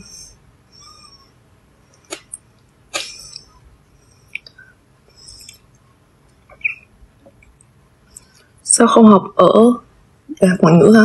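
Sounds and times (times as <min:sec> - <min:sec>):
faint mouth noises: 0:01.9 - 0:03.6, 0:04.2 - 0:05.8
lip smack: 0:02.1 - 0:03.4.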